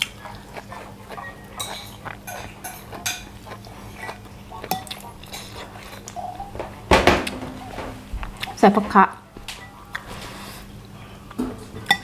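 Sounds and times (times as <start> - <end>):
chewing and lip smacking: 0.0 - 6.6.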